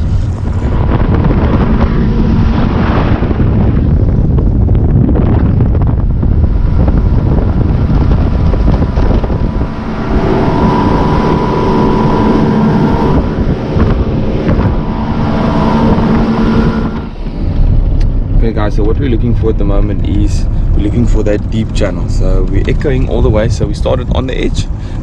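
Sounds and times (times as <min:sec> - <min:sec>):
motorboat engine drone: 0:00.0 - 0:25.0
wind buffeting microphone: 0:00.0 - 0:25.0.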